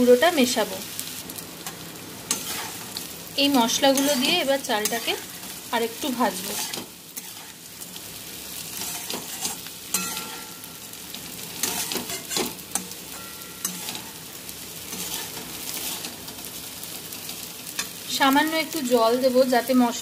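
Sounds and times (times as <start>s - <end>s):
food sizzling in a wok: 0.0s - 20.0s
metal spatula scraping a pan: 1.6s - 3.0s, 3.6s - 8.0s, 8.7s - 14.2s, 14.9s - 16.2s.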